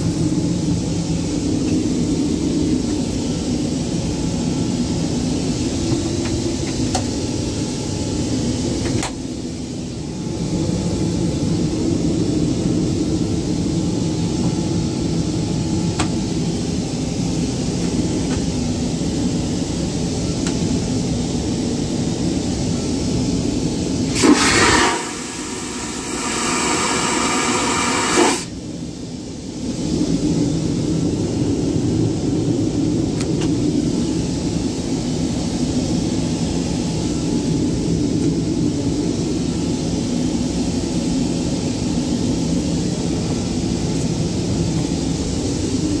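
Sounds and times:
airliner cabin drone: 0:00.0 - 0:46.0
vacuum toilet rushing suction: 0:24.1 - 0:28.6.

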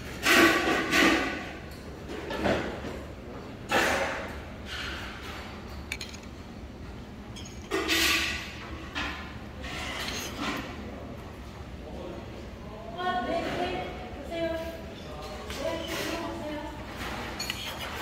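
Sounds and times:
dishes knocking and rustling: 0:00.1 - 0:10.8, 0:15.2 - 0:18.0
light clink of dishes: 0:07.3 - 0:08.2.

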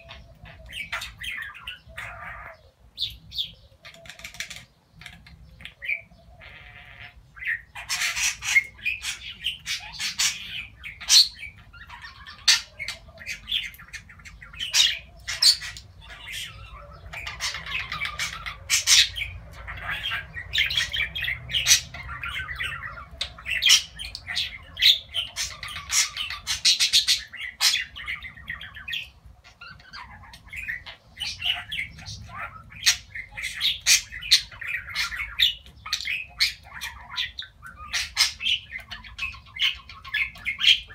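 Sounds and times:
budgerigars chattering and warbling: 0:00.0 - 0:40.9.

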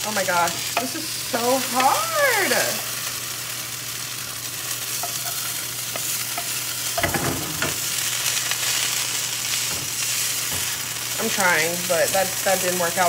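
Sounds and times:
potatoes sizzling in a frying pan: 0:00.0 - 0:13.0.

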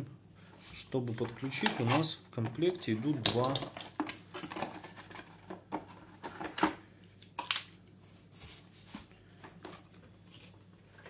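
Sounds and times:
plastic adapters clicking and knocking: 0:01.5 - 0:07.6
tissue paper rustling: 0:08.0 - 0:09.4.

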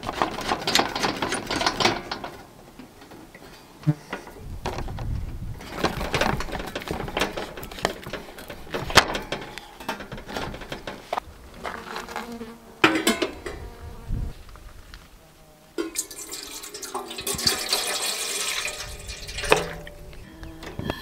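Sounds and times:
kettle clanking on metal grate: 0:00.0 - 0:02.5, 0:05.6 - 0:11.2, 0:12.8 - 0:13.6, 0:15.8 - 0:20.8
camp stove clicks and metal knocks: 0:00.0 - 0:03.5, 0:05.6 - 0:11.2, 0:12.8 - 0:13.6, 0:15.8 - 0:18.4, 0:19.3 - 0:20.0
flies buzzing: 0:03.8 - 0:04.3, 0:11.1 - 0:16.6.

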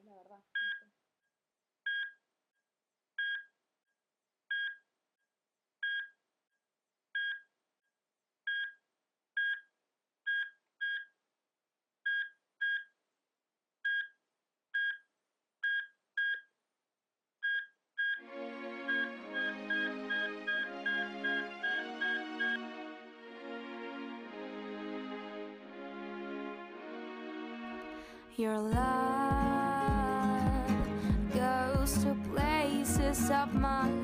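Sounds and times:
heart monitor beeping: 0:00.6 - 0:00.8, 0:01.9 - 0:02.2, 0:03.2 - 0:03.5, 0:04.5 - 0:04.8, 0:05.8 - 0:06.2, 0:07.2 - 0:07.5, 0:08.5 - 0:08.8, 0:09.4 - 0:09.7, 0:10.3 - 0:11.2, 0:12.1 - 0:13.0, 0:13.9 - 0:14.2, 0:14.8 - 0:16.5, 0:17.4 - 0:18.2, 0:18.9 - 0:22.6.

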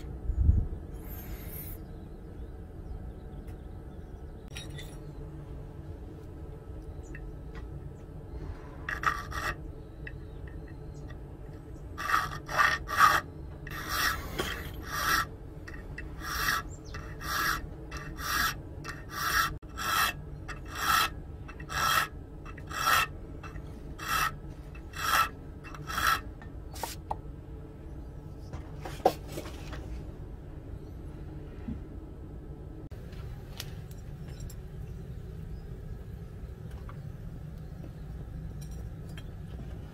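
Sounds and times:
file rasping on steel: 0:08.8 - 0:10.6, 0:11.9 - 0:26.3.

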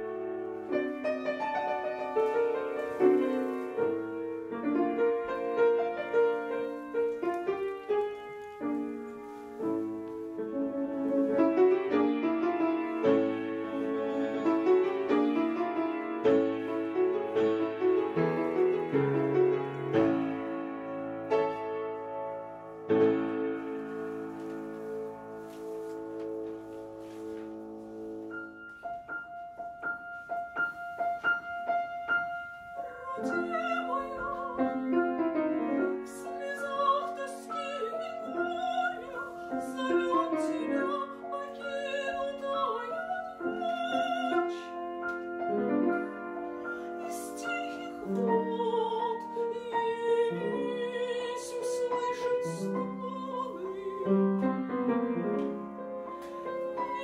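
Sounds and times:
piano: 0:00.0 - 0:57.0
woman singing operatically: 0:32.9 - 0:34.8, 0:36.0 - 0:44.8, 0:47.0 - 0:54.4.

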